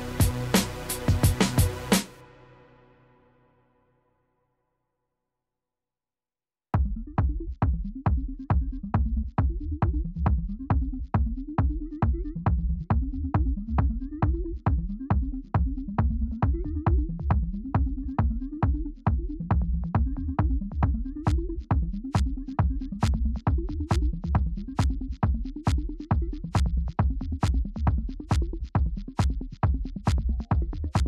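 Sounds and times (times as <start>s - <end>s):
electronic dance music: 0.0s - 2.4s, 6.8s - 31.0s.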